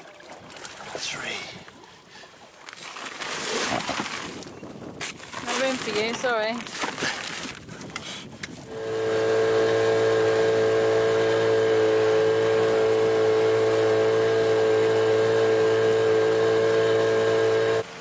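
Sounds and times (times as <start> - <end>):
outboard motor running: 0.0 - 18.0
motor whine: 8.7 - 18.0.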